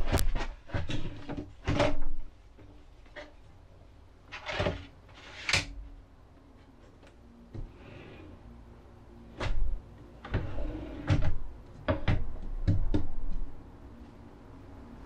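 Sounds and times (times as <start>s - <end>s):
drawers sliding on runners: 4.3s - 5.7s, 10.2s - 12.2s.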